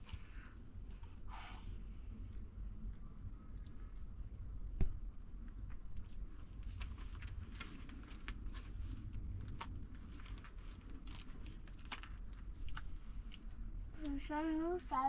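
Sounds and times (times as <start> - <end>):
low steady rumble: 0.0 - 15.0
flatbread crackling: 5.3 - 14.3.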